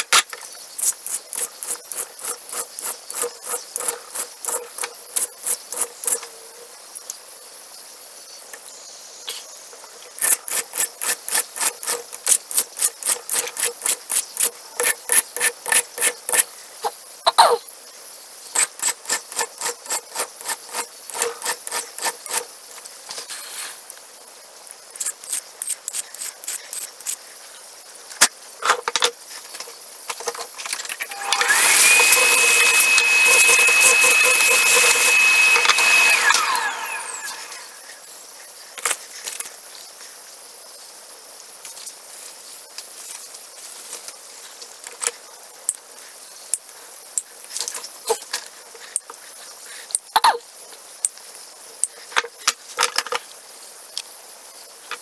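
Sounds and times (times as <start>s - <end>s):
hand file rasping on metal: 1.1s - 6.2s, 18.6s - 22.4s, 31.1s - 37.2s
small motor running: 31.0s - 37.8s.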